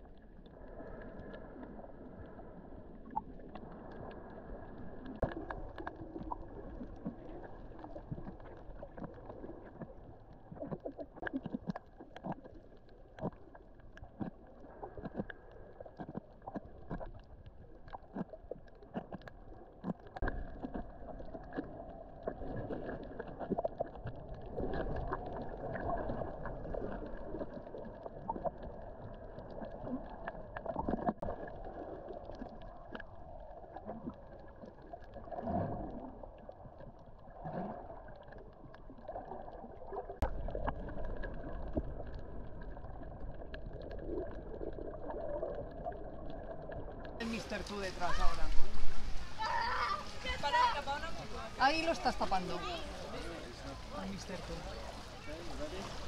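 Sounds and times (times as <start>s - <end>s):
water splashing and gurgling: 0.0s - 56.0s
small irregular clicks: 9.8s - 22.4s.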